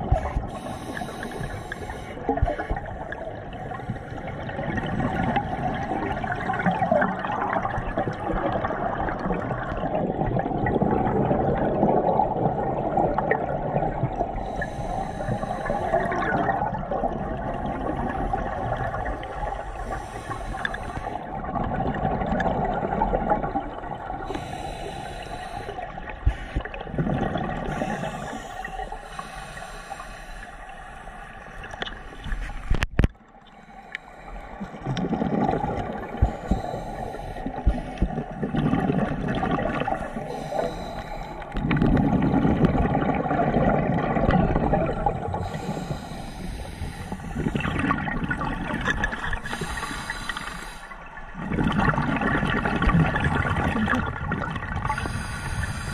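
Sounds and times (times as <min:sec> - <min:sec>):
gurgling exhaust bubbles: 0:00.0 - 0:00.5, 0:02.2 - 0:14.4, 0:26.6 - 0:28.2, 0:34.7 - 0:36.8, 0:37.6 - 0:40.5, 0:41.5 - 0:45.8, 0:47.2 - 0:50.0, 0:51.3 - 0:55.3
scuba regulator breathing: 0:00.2 - 0:05.3, 0:14.3 - 0:16.3, 0:17.5 - 0:21.3, 0:24.2 - 0:26.8, 0:27.6 - 0:31.5, 0:32.1 - 0:38.4, 0:39.7 - 0:42.3, 0:45.0 - 0:51.3, 0:54.8 - 0:55.9.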